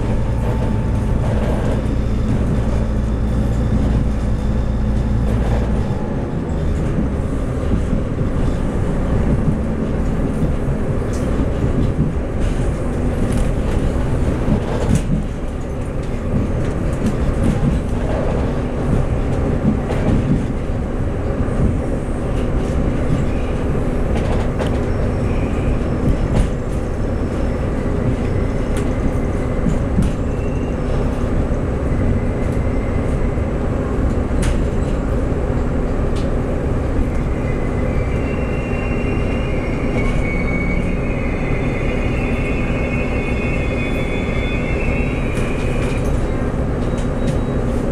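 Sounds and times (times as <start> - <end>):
train interior rumble: 0.0 - 47.9
high brake squeal: 24.8 - 29.6, 30.2 - 31.2, 37.2 - 47.8.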